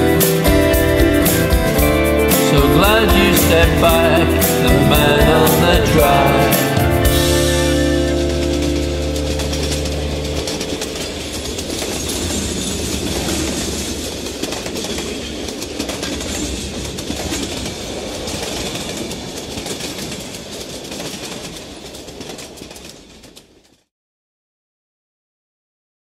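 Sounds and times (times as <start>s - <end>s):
train rumbling on rails: 0.0s - 23.8s
wheel clicks on rails: 7.8s - 23.7s.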